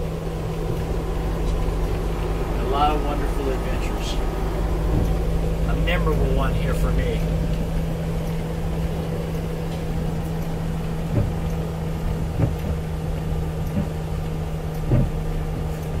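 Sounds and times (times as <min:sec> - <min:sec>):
bus diesel engine droning: 0:00.0 - 0:16.0
short knocks: 0:14.8 - 0:15.6.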